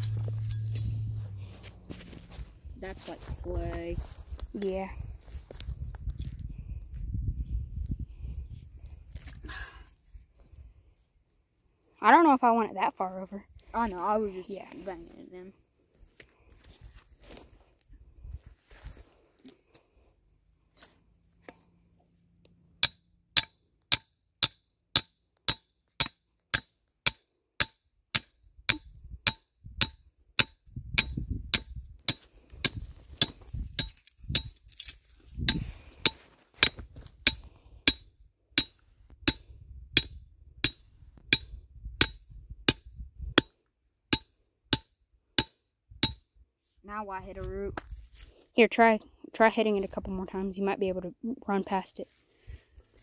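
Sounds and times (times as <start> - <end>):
hammer striking metal stake: 0.0 - 1.1, 22.8 - 46.2.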